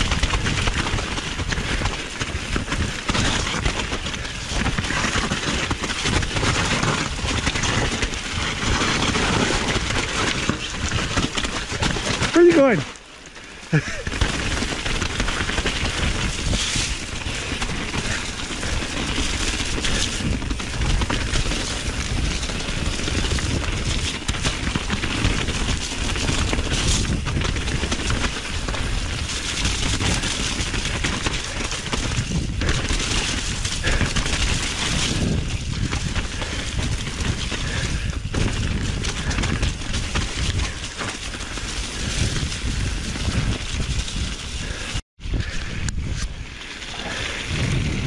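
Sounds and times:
dense crackling rattle: 0.0s - 48.0s
wind buffeting microphone: 13.8s - 48.0s.

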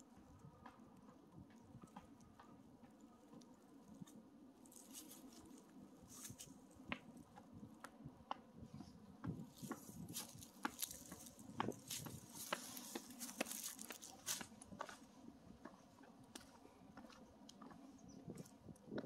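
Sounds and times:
footsteps crunching dry leaves: 4.7s - 6.5s, 9.5s - 14.6s.

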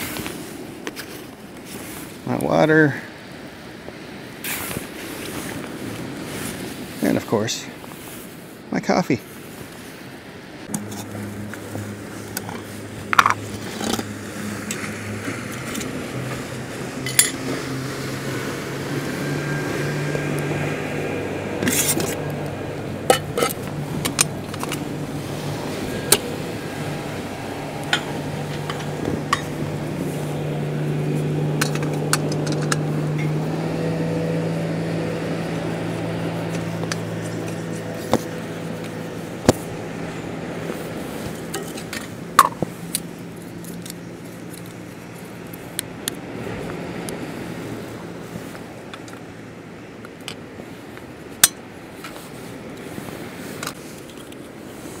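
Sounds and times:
low engine drone: 10.2s - 55.0s
camping stove kit clinking: 17.0s - 17.4s, 23.0s - 24.9s, 27.8s - 29.6s, 31.4s - 33.4s, 41.2s - 43.0s, 51.4s - 52.2s
stove screwed onto canister: 23.1s - 24.8s, 31.6s - 33.3s.

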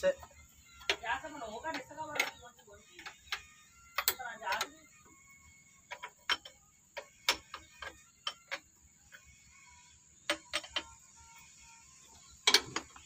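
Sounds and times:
hand tools clicking on metal: 0.0s - 5.1s, 5.9s - 9.3s, 10.2s - 11.0s, 12.4s - 13.0s.

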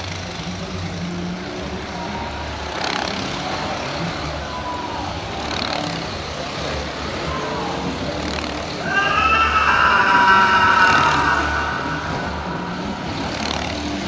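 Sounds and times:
vehicle noise with low rumble: 0.0s - 8.9s.

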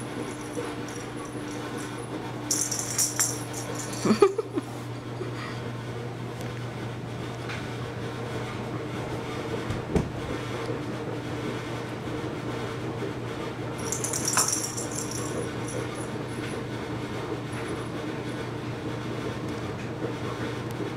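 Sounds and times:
ball rattle on hardwood floor: 0.0s - 4.2s, 13.8s - 16.6s
low household hum: 0.0s - 20.9s.

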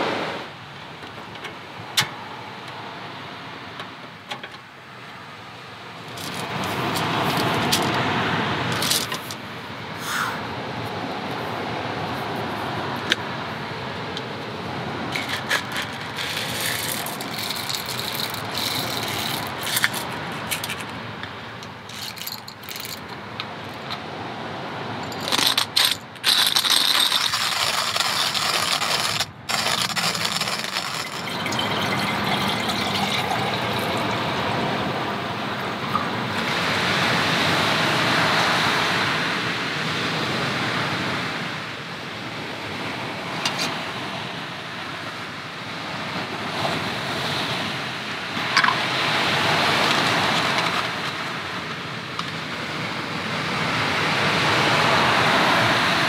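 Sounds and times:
steady rushing noise: 5.7s - 56.0s
camping cookware clattering: 15.2s - 21.0s.

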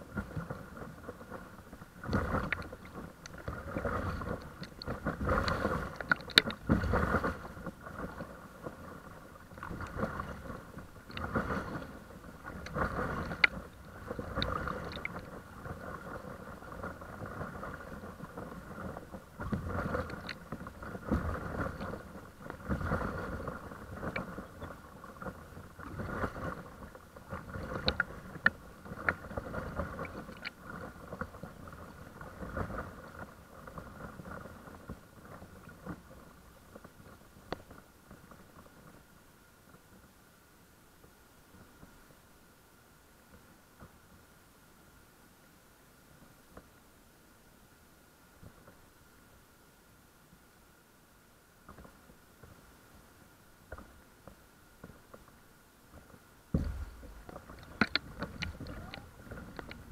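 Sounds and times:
water lapping against board: 0.0s - 38.9s, 55.9s - 59.9s
paddle strokes in water: 0.0s - 59.9s.

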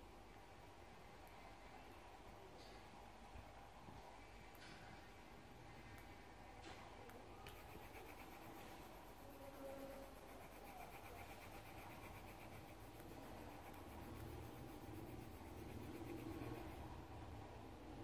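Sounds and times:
pencil scratching on paper: 7.4s - 17.1s.

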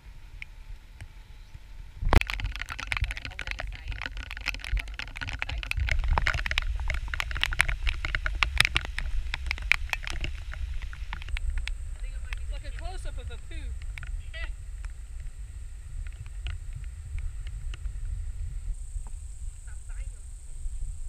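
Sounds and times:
low rumble: 0.0s - 21.0s
raindrops tapping on plastic: 2.1s - 15.4s, 16.0s - 18.1s.

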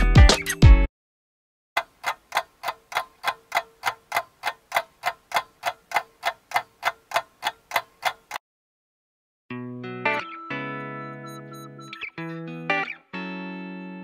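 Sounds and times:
clock ticking: 1.8s - 8.4s.

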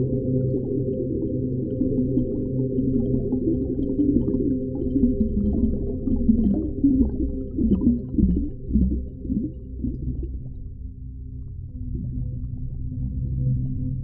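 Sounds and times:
underwater low rumble: 0.0s - 14.0s
moans rising and dipping in pitch: 3.0s - 10.5s.

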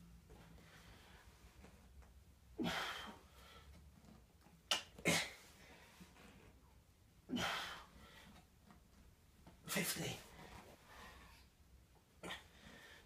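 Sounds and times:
man huffing breaths: 2.5s - 3.8s, 7.3s - 8.4s.

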